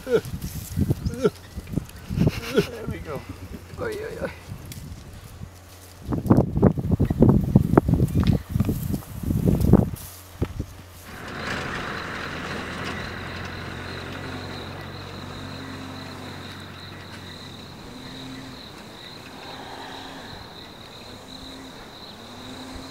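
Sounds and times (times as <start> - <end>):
vehicle engine idling: 0.0 - 7.0, 8.2 - 22.9
high-pitched insect trill: 11.1 - 22.9.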